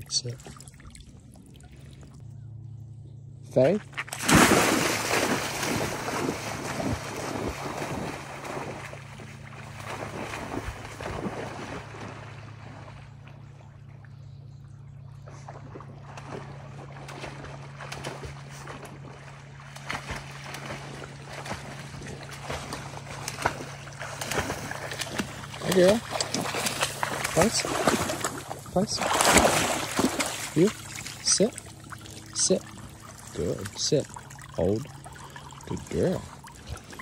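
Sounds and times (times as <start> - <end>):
dog splashing through water: 3.9 - 13.3, 15.2 - 37.0.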